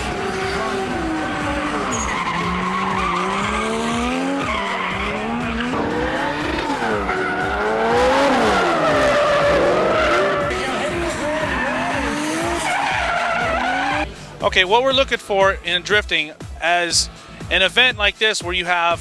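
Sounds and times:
tyres squealing on asphalt: 0.0s - 14.1s
car engines revving: 0.0s - 14.4s.

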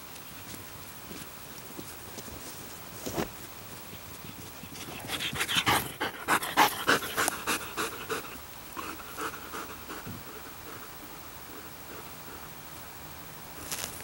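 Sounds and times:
dog panting: 4.1s - 12.6s.

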